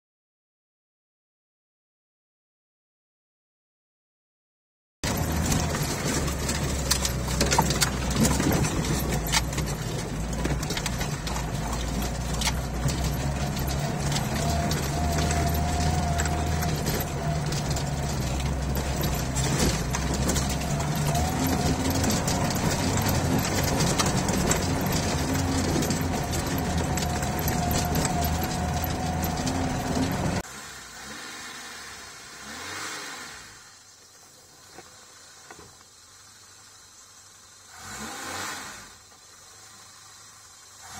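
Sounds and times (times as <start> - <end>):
body knocks and rattles: 5.0 - 30.4
car engine droning: 5.0 - 35.6.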